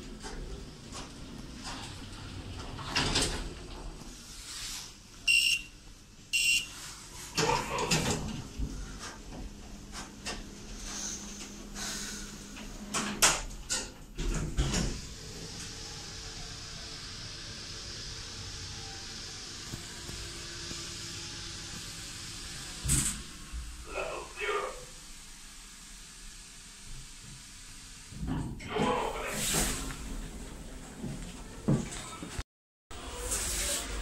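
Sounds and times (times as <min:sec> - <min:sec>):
automatic doors sliding open: 0:00.0 - 0:04.1, 0:07.2 - 0:24.7, 0:28.1 - 0:32.2
lift electronic beep: 0:05.3 - 0:05.7, 0:06.4 - 0:06.7.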